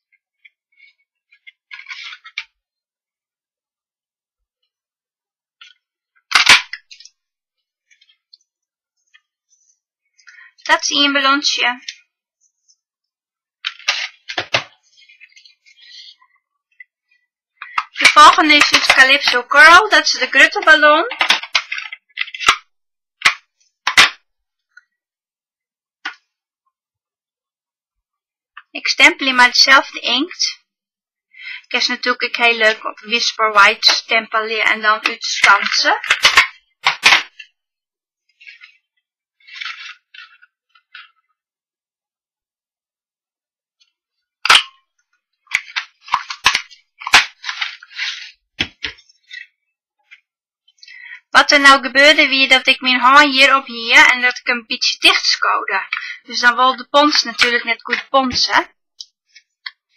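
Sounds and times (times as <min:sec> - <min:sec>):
paper rustling: 0:13.6 - 0:16.4, 0:39.4 - 0:41.2, 0:45.5 - 0:49.5.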